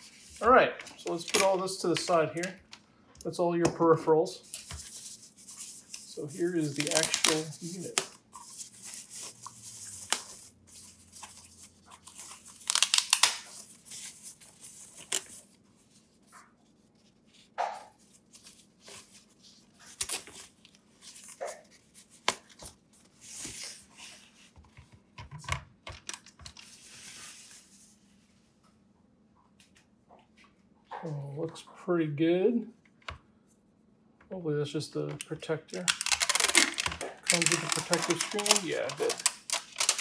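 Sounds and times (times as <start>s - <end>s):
wrapping sheet rustling and crinkling: 0.0s - 2.6s, 4.4s - 24.8s, 26.1s - 28.6s, 35.7s - 40.0s.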